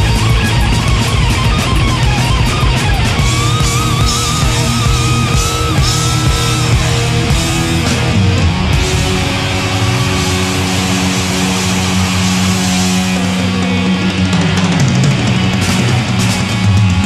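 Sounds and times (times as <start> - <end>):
thrash metal band playing live: 0.0 - 17.0.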